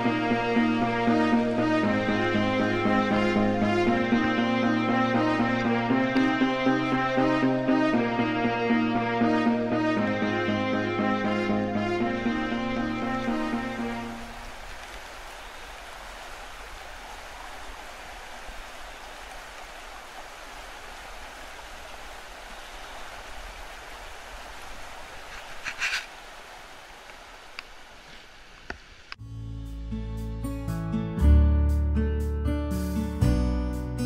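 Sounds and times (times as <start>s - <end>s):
stream rushing over rocks: 12.2s - 29.1s.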